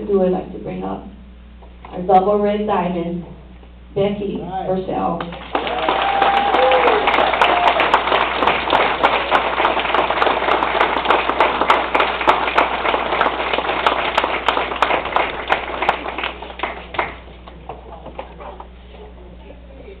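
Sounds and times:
audience applause: 5.3s - 17.7s.

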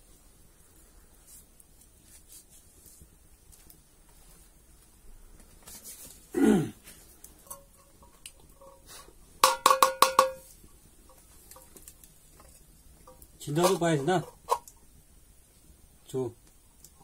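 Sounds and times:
metal pot clinking: 7.4s - 10.5s, 12.4s - 14.6s.

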